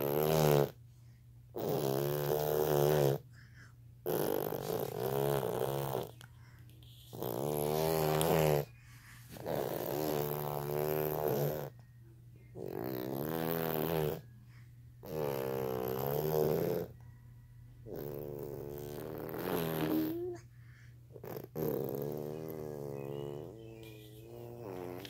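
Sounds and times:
person snoring: 0.0 - 0.8, 1.6 - 3.3, 4.0 - 6.2, 7.1 - 8.8, 9.4 - 11.7, 12.6 - 14.2, 15.0 - 17.0, 17.9 - 20.4, 21.2 - 25.0.

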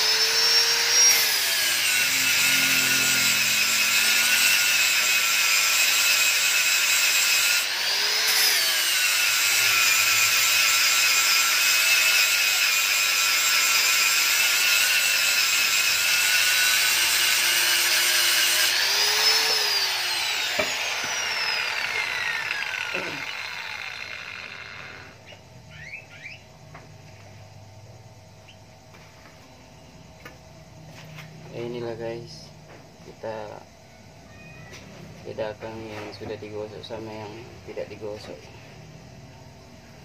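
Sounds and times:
angle grinder grinding metal: 0.0 - 25.3
grinder disc spinning down: 0.0 - 25.3.

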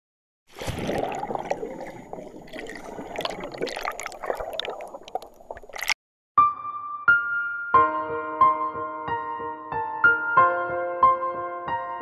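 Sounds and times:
water with clicks and pops: 0.5 - 6.0.

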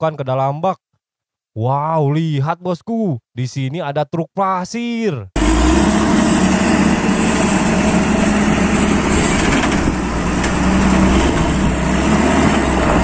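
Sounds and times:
truck diesel engine rumbling: 5.4 - 13.0.

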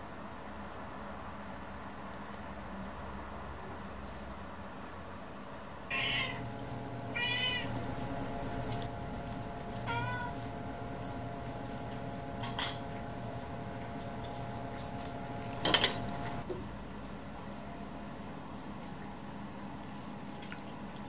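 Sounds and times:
cat meowing: 5.9 - 6.4, 7.1 - 7.8, 9.8 - 10.4.

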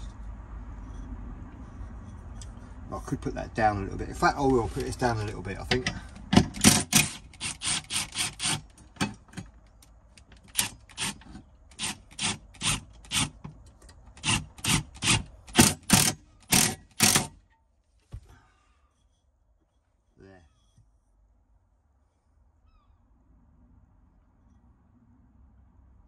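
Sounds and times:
hand tool rasping: 4.2 - 9.4, 10.4 - 13.5, 14.1 - 17.4.

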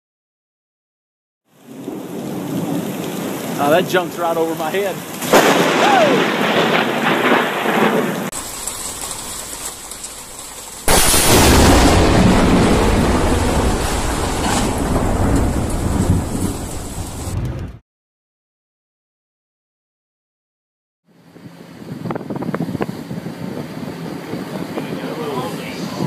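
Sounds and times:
rain falling: 1.5 - 17.8
storm wind: 1.5 - 17.8, 21.3 - 26.0
thunder rumbling: 1.6 - 17.8.

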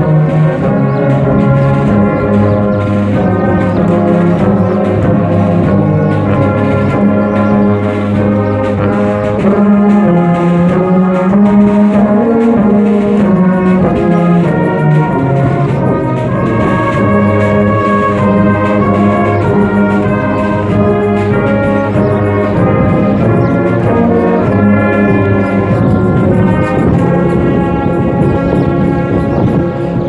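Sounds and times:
brass band playing chords: 0.0 - 30.0
low bass line: 0.0 - 30.0.

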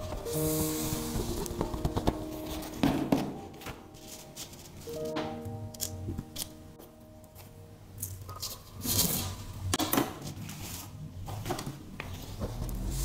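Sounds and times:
paper sheet handled: 0.0 - 5.2.

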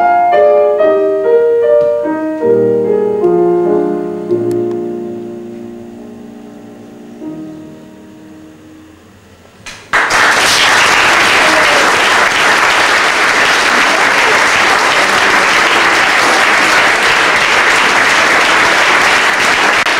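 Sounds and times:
audience applause: 9.9 - 19.9.

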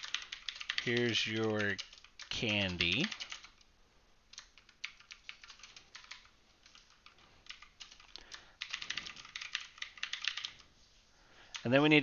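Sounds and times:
keyboard typing clicks: 0.0 - 3.7, 4.3 - 10.7.

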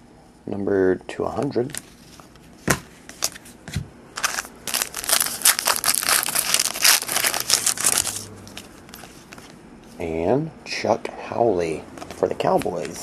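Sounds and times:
wrapper crinkling: 3.1 - 3.5, 4.2 - 9.6.

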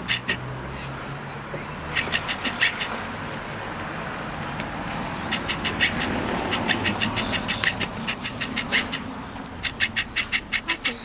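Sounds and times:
baby marten chattering: 0.0 - 0.5, 1.8 - 3.1, 5.2 - 11.0
car passing rumble: 0.0 - 11.0.

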